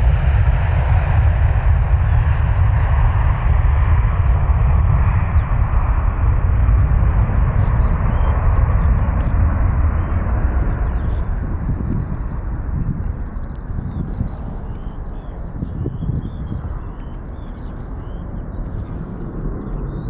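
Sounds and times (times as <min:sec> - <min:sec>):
jet airliner engine rumble: 0:00.0 - 0:20.0
birds chirping faintly: 0:05.2 - 0:20.0.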